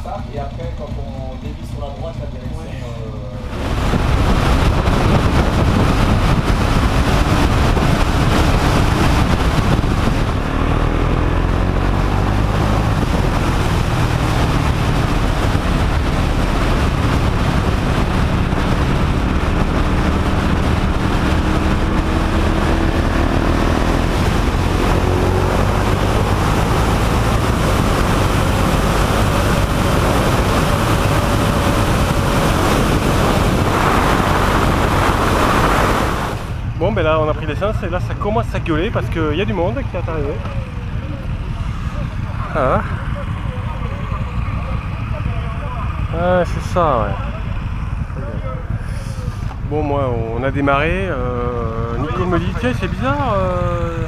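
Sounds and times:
motorcycle engine running: 0:00.0 - 0:54.0
wind rush on microphone: 0:03.4 - 0:43.4.

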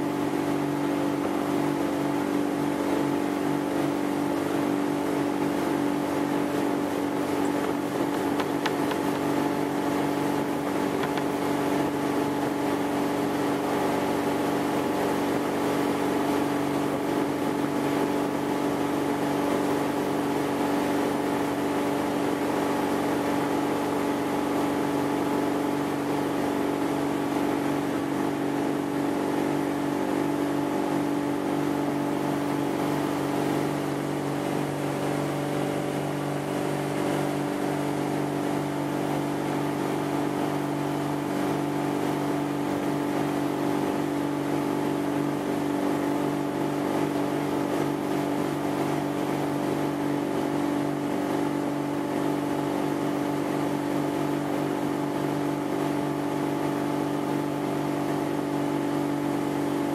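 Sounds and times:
water rushing: 0:00.0 - 0:21.7
boat engine drone: 0:00.0 - 0:59.9.

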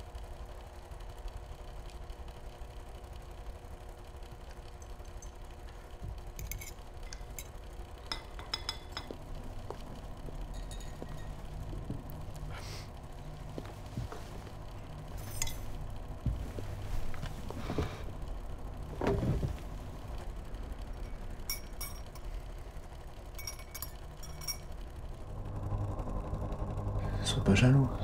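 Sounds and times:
steady low hum: 0:00.0 - 0:28.0
dishes and cutlery clinking: 0:06.4 - 0:09.2, 0:10.5 - 0:11.5.

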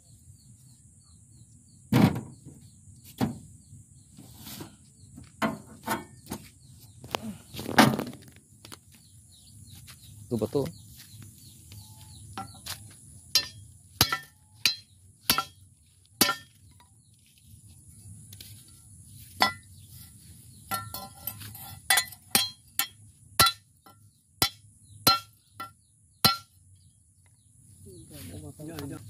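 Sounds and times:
hammer striking metal: 0:13.3 - 0:15.6, 0:16.2 - 0:16.6, 0:20.7 - 0:23.7, 0:24.4 - 0:26.6.

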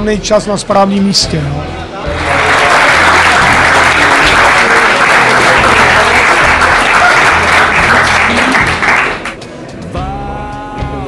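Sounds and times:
audience applause: 0:02.1 - 0:09.4.

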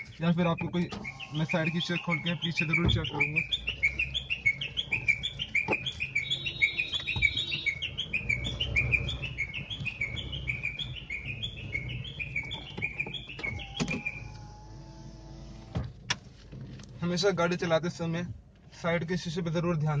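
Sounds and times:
high bird-like chirps: 0:00.0 - 0:14.3
car engine hum: 0:00.0 - 0:20.0.

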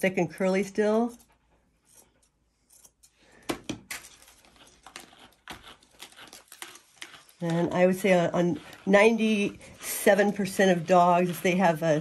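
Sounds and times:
brush scratching through dog fur: 0:04.3 - 0:12.0.

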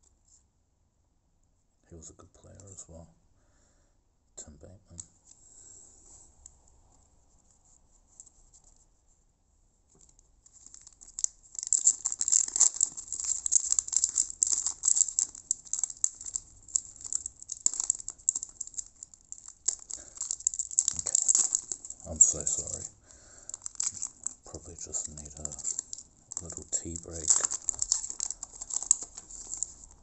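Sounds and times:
wrapper crinkling: 0:10.0 - 0:30.0.

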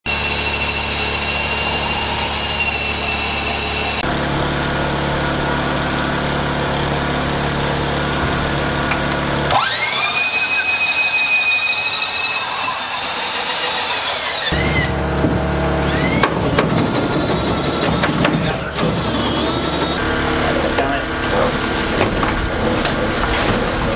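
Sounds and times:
electric drill boring through wood: 0:00.1 - 0:04.1, 0:08.2 - 0:15.1, 0:15.8 - 0:20.0.

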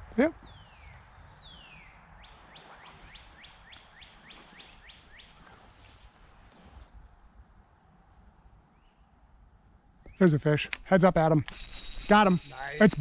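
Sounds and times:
bird singing: 0:00.0 - 0:07.8, 0:08.6 - 0:09.2, 0:10.0 - 0:10.4, 0:11.5 - 0:13.0.

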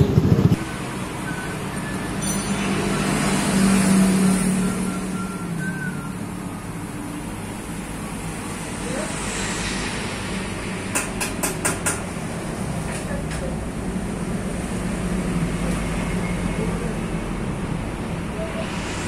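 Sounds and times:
vehicle engine running: 0:00.0 - 0:01.4.

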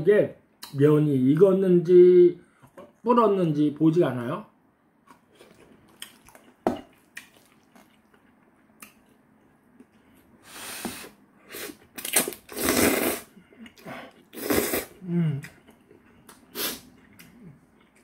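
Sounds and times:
man slurping noodles: 0:12.5 - 0:13.3, 0:14.3 - 0:15.0.

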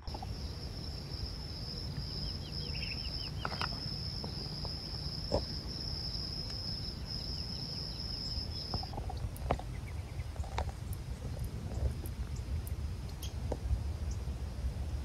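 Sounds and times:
insects trilling: 0:00.0 - 0:14.7
bird chirping: 0:00.1 - 0:10.4.

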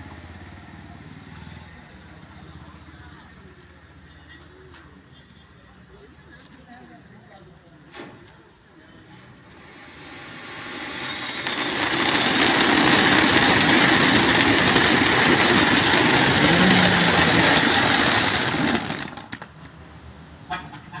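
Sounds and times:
firework fountain hissing: 0:09.2 - 0:19.7
firework crackles: 0:09.3 - 0:19.8.

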